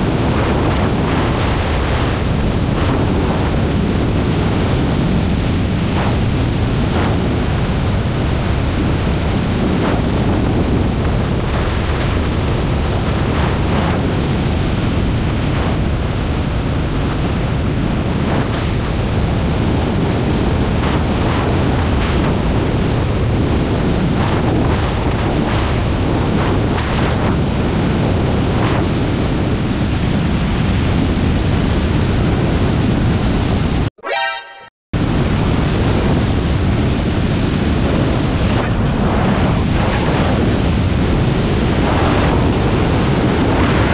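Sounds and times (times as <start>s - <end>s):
wind rushing over microphone: 0.0s - 33.9s, 35.0s - 43.9s
short high-pitched tone: 34.0s - 34.7s.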